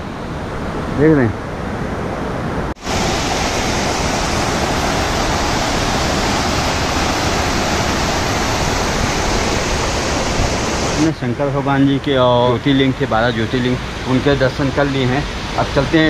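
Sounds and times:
stream flowing over rocks: 0:02.8 - 0:11.1.

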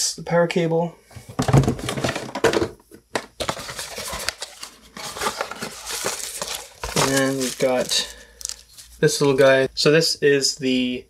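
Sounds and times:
wrapping crinkling and rustling: 0:03.4 - 0:09.6.

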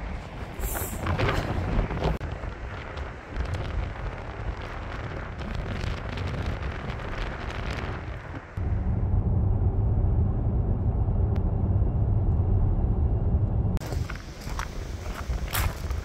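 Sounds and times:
wind buffeting microphone: 0:00.0 - 0:11.9, 0:13.7 - 0:16.0.

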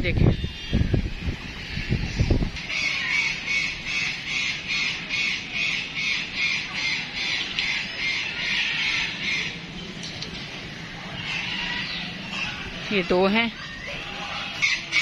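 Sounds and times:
bird squawking: 0:01.7 - 0:09.7, 0:11.0 - 0:15.0.

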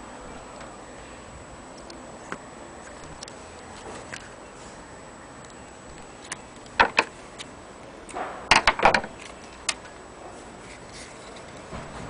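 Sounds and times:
sharp clicks and knocks: 0:05.9 - 0:09.9.

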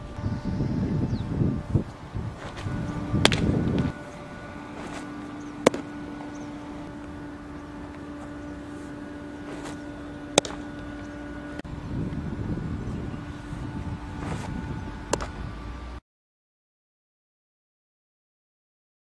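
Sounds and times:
outdoor wind noise: 0:00.0 - 0:16.0
steady low hum: 0:00.0 - 0:16.0
baseball popping into glove: 0:02.4 - 0:03.9, 0:04.7 - 0:05.9, 0:09.4 - 0:10.6, 0:14.2 - 0:15.4.

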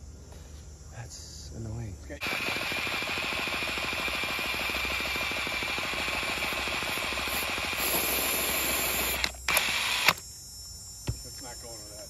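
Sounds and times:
small motor rattling: 0:02.2 - 0:10.2
sharp clicks: 0:09.1 - 0:10.2.

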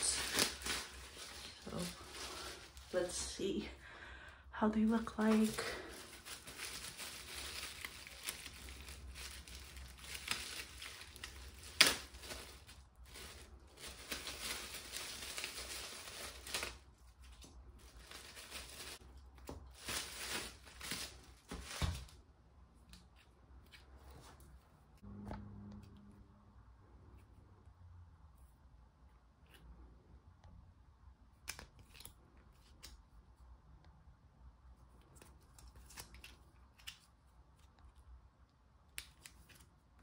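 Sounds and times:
plastic packaging crinkling: 0:00.0 - 0:03.4, 0:04.8 - 0:22.2.

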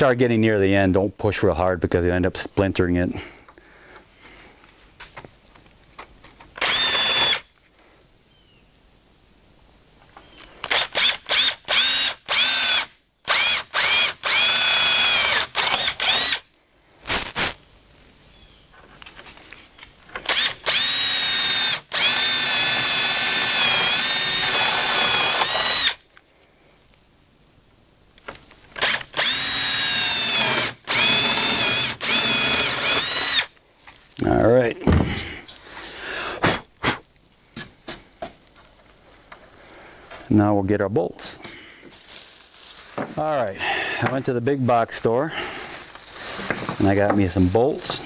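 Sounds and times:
cordless drill boring through wood: 0:06.6 - 0:07.5, 0:10.6 - 0:16.4, 0:20.2 - 0:26.0, 0:28.8 - 0:33.5.

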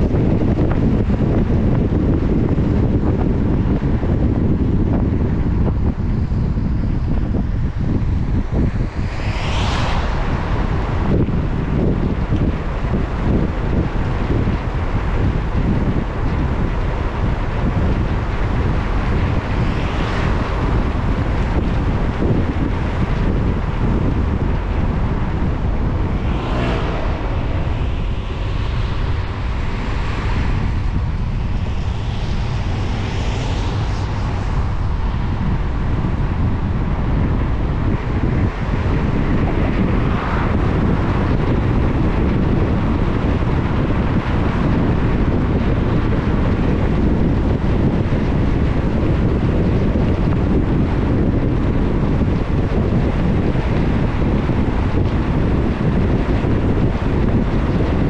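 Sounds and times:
car driving on wet road: 0:07.6 - 0:57.2
swooshes of passing water: 0:08.3 - 0:11.8, 0:24.6 - 0:35.7.

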